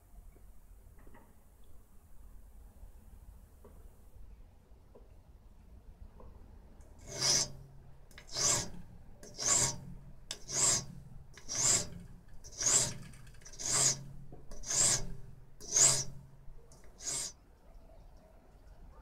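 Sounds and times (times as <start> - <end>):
file strokes on steel: 7.0 - 17.4.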